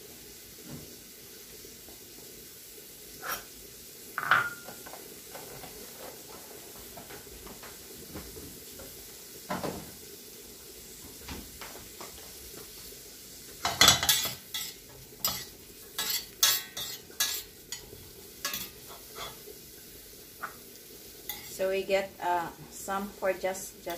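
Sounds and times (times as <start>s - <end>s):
onions sizzling in a pan: 0.0s - 23.9s
utensil scraping against pan: 3.2s - 3.5s, 13.8s - 19.4s, 21.3s - 21.6s.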